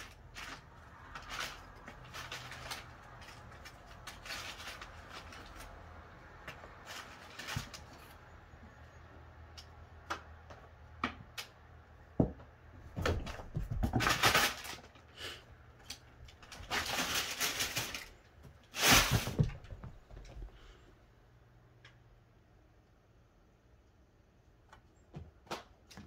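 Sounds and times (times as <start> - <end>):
cats rustling and scratching paper: 0.0 - 8.8, 12.8 - 20.8
thumps in cardboard box: 18.8 - 20.2.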